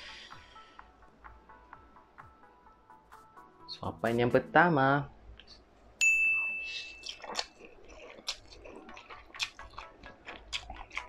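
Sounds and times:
bright ding: 6.0 - 7.0
chewing and slurping noodles: 7.0 - 11.0.

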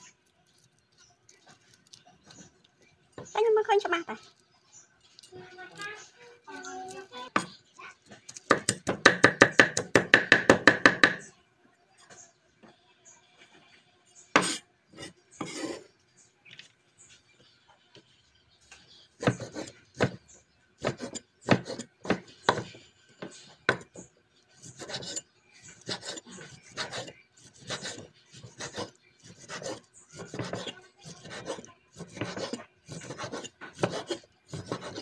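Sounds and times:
cleaver cutting meat on wood: 7.0 - 11.2, 14.4 - 15.9, 18.7 - 35.0.

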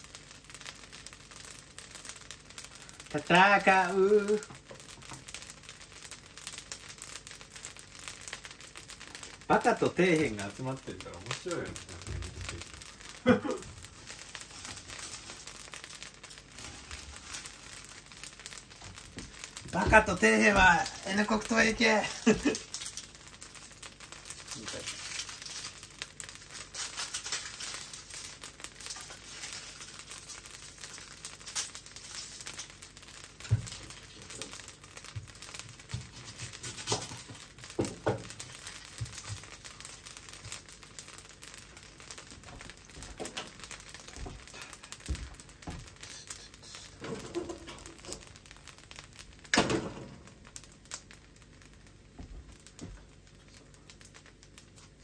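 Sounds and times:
rice sizzling in a wok: 0.0 - 55.0.

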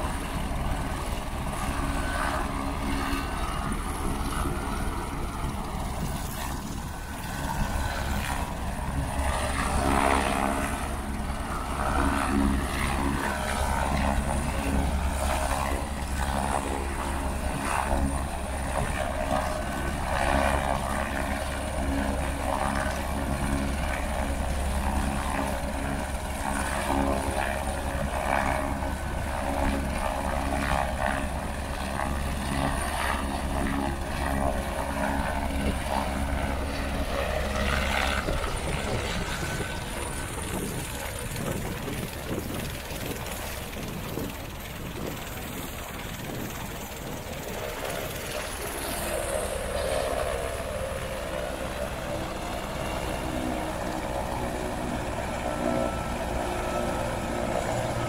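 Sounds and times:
helicopter engine and rotor running: 0.0 - 58.0.

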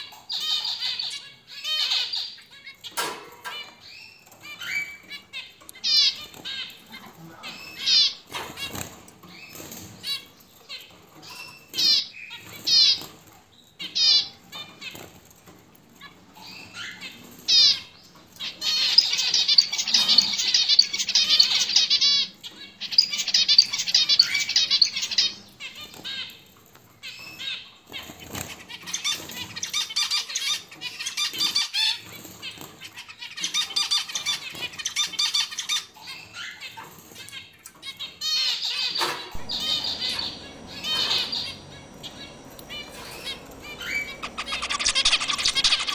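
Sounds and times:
finch song: 16.4 - 26.4, 37.7 - 45.9.

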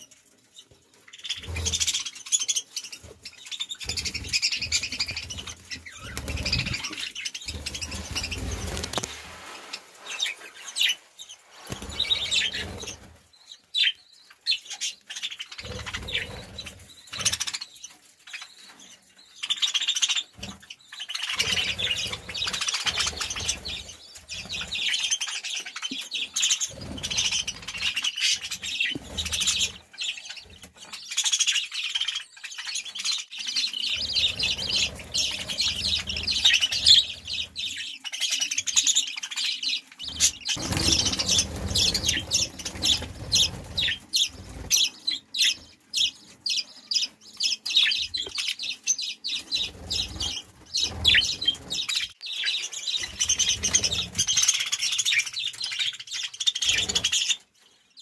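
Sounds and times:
budgerigars chirping: 0.6 - 9.1, 10.0 - 58.0.

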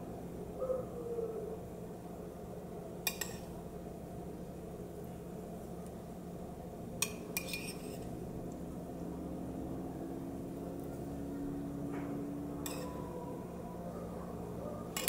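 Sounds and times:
steady low hum: 0.0 - 15.0
metal spoon clinking ceramic bowl: 12.6 - 13.0.

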